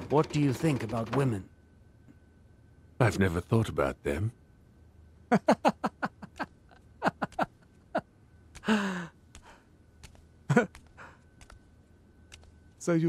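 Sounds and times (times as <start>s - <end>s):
faint high tone hum: 0.0s - 13.0s
person sighing: 8.6s - 9.2s.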